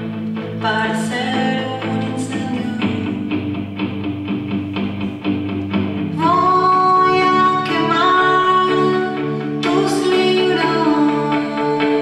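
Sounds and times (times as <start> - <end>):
person singing: 0.0 - 3.7, 6.1 - 12.0
guitar strumming: 0.0 - 12.0.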